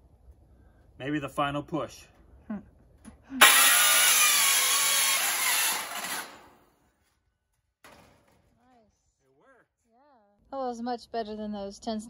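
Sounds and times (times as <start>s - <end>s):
circular saw cutting metal: 3.4s - 6.6s.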